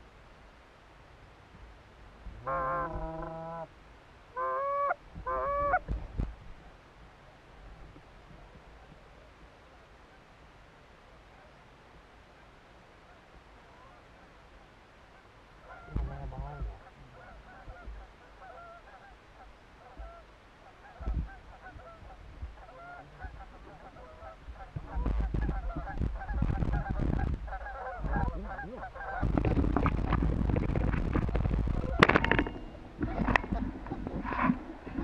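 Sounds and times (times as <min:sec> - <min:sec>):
geese honking: 0:02.4 - 0:03.7, 0:04.3 - 0:05.8, 0:15.1 - 0:35.0
heavy rustling and knocking: 0:29.2 - 0:35.0.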